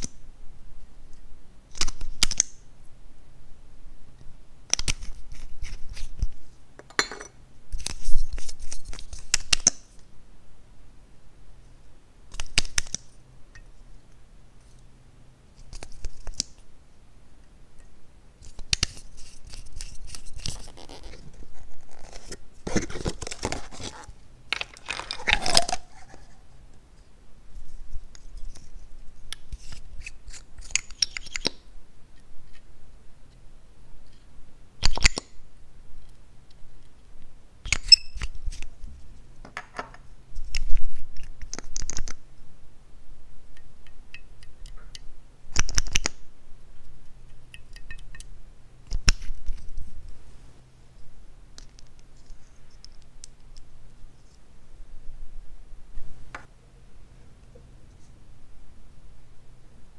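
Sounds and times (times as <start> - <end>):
scraping and rubbing: 18.8 - 26.4
plastic caps clicking: 24.5 - 25.9.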